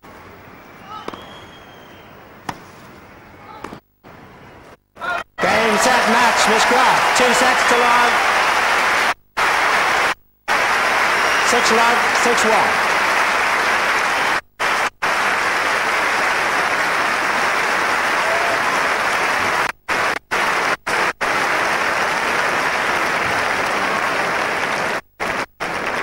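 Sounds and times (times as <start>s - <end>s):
crowd applauding: 5.4s - 26.0s.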